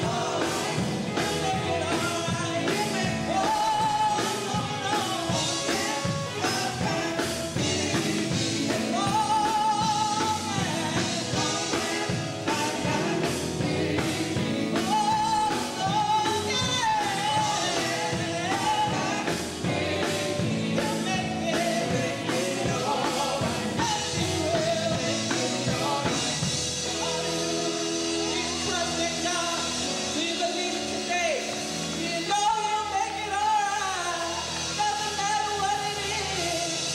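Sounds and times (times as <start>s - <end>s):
women's vocal group singing: 0.0s - 28.9s
drum kit: 0.0s - 36.9s
electric guitars: 0.0s - 36.9s.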